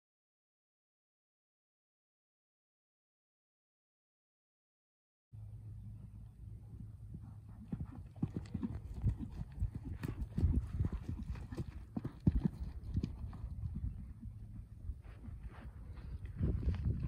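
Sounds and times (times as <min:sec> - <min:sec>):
horse hoofbeats on sand: 0:06.8 - 0:17.0.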